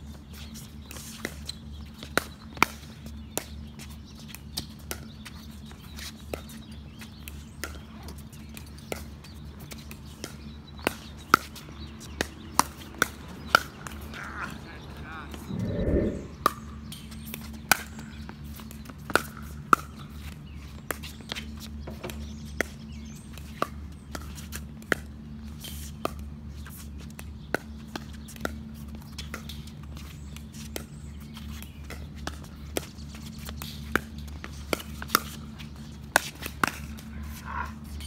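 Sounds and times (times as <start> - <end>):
low steady hum: 15.2 - 16.5.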